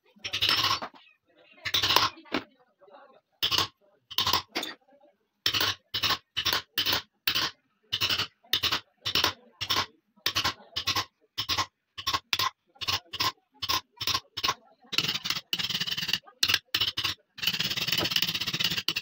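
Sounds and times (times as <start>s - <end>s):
chisel scraping wood: 0.2s - 1.0s, 1.7s - 2.2s, 3.4s - 4.8s, 5.4s - 19.0s.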